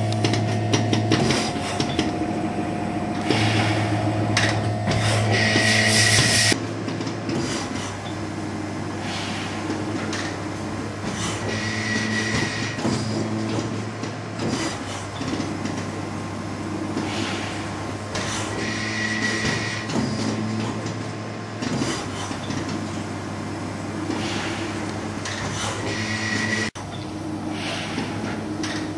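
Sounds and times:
machine low hum: 0.0s - 28.9s
pneumatic air hiss: 3.2s - 4.0s, 5.0s - 6.6s, 27.5s - 28.2s.

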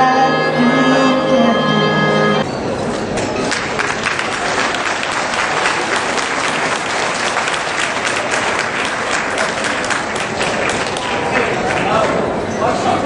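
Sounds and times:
audience applauding: 3.4s - 12.3s.

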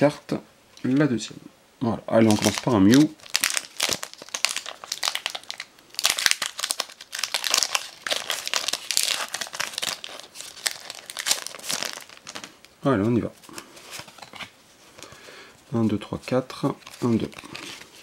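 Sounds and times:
foil wrapper crinkling: 2.2s - 12.8s.

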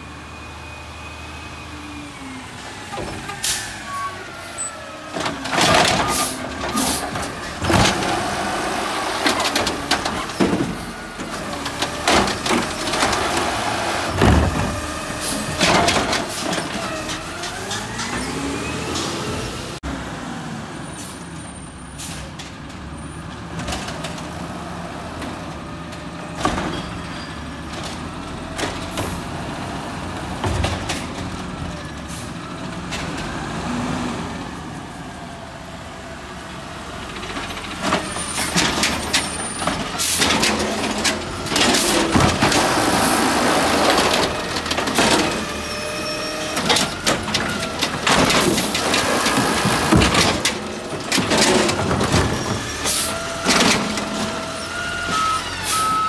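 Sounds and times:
diesel truck engine: 0.0s - 56.0s
cart banging and clattering: 5.1s - 19.2s, 30.0s - 31.8s, 37.1s - 56.0s.

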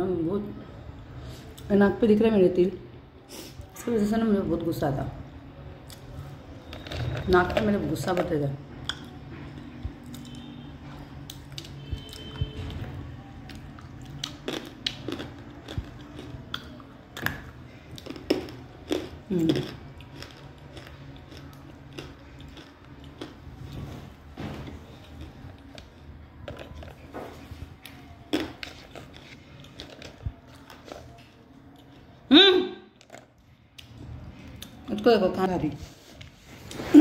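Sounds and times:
crunchy chewing: 5.8s - 10.6s, 13.4s - 32.2s.

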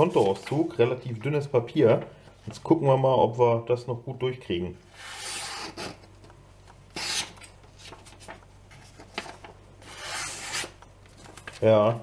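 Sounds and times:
knife slicing paper: 9.8s - 10.8s.

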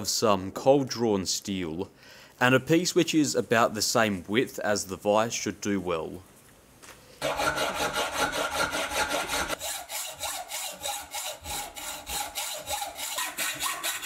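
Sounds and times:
hacksaw cutting steel bar: 7.2s - 14.0s.

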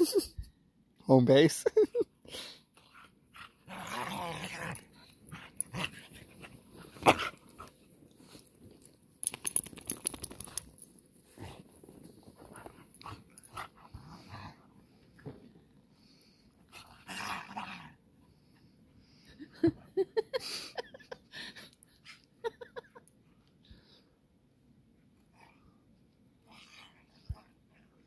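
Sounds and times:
dog growl: 3.4s - 6.1s, 16.8s - 18.0s.

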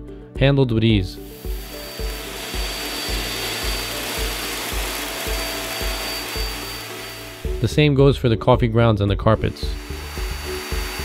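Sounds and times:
vacuum cleaner running: 1.2s - 8.0s, 9.4s - 11.0s
background music with a beat: 1.2s - 8.2s, 9.6s - 11.0s.

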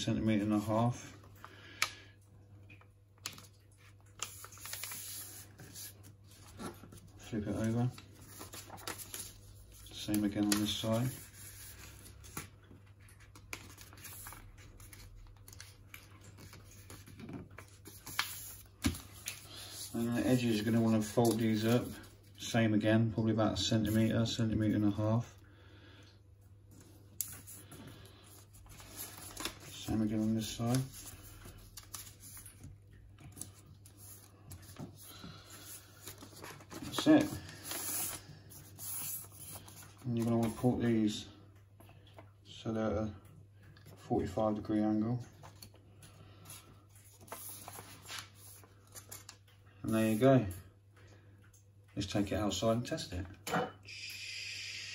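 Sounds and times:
paper rustling and crinkling: 3.2s - 22.6s, 26.8s - 40.9s, 45.2s - 50.2s.

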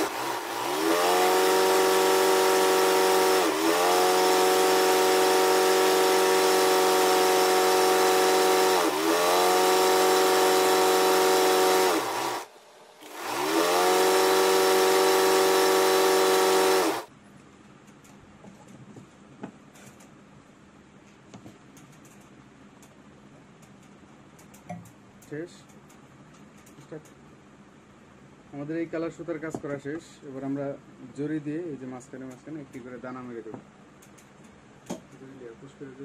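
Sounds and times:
motor-driven machine humming: 0.0s - 17.1s.

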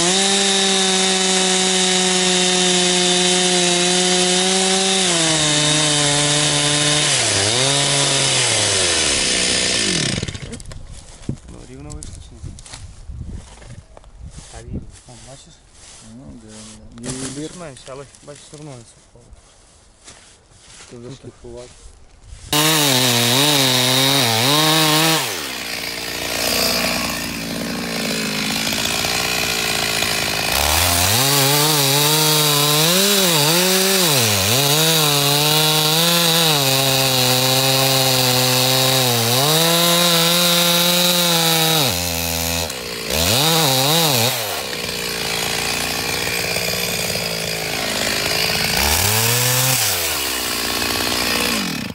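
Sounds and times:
chainsaw cutting wood: 0.0s - 10.8s, 22.5s - 51.9s.

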